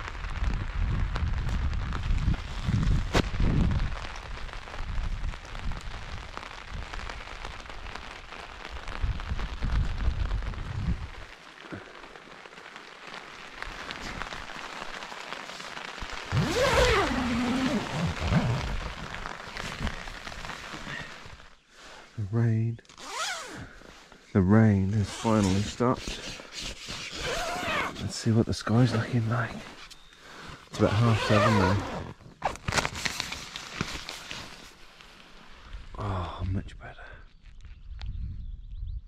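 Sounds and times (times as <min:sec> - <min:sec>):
wind rumbling on microphone: 0:00.0 - 0:11.8, 0:15.5 - 0:21.5, 0:35.6 - 0:39.0
steady rain hissing: 0:00.0 - 0:37.4.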